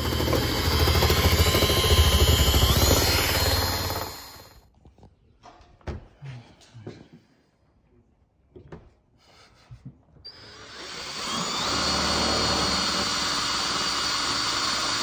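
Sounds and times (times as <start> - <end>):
drill boring through metal: 0.0 - 4.6, 10.3 - 15.0.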